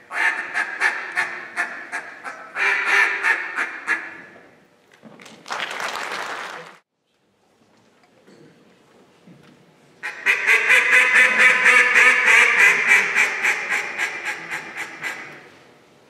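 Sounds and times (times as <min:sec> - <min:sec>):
duck call quacking: 0:00.0 - 0:04.4, 0:10.0 - 0:15.5.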